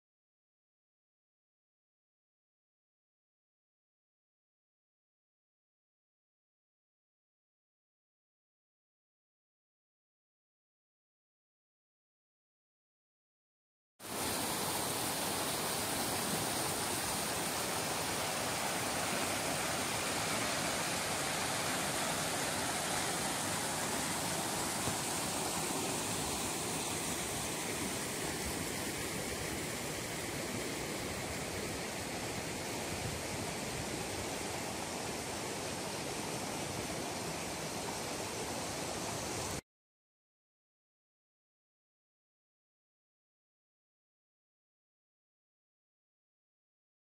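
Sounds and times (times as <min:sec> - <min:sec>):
river water rushing over rocks: 0:14.0 - 0:39.6.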